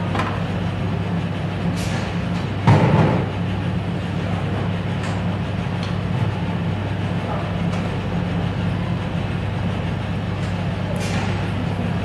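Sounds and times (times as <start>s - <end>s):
machinery humming: 0.0s - 12.0s
loud clunk: 1.8s - 3.3s.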